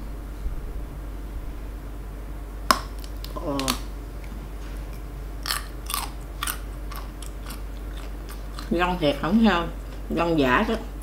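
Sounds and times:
crunchy chewing: 2.7s - 10.1s.

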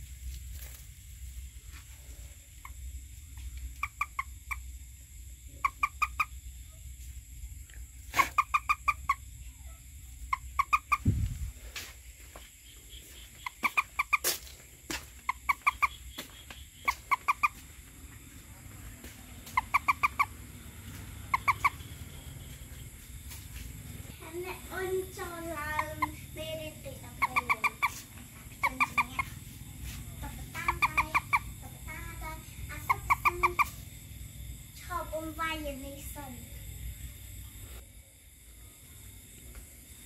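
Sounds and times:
frog clucking calls: 2.6s - 6.8s, 7.6s - 11.5s, 12.6s - 23.4s, 24.0s - 34.1s.

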